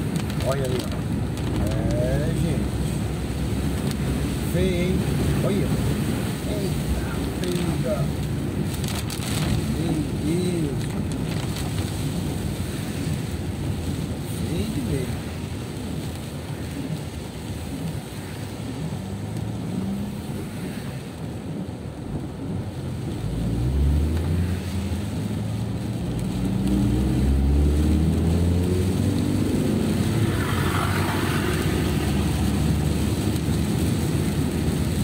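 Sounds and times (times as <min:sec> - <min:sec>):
rain hissing: 0:00.0 - 0:35.0
tyres on wet road: 0:00.0 - 0:35.0
car engine accelerating: 0:23.0 - 0:35.0.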